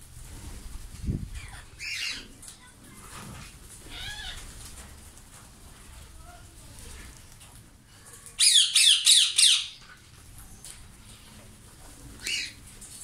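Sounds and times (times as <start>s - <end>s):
parakeet screeching: 8.4s - 9.8s.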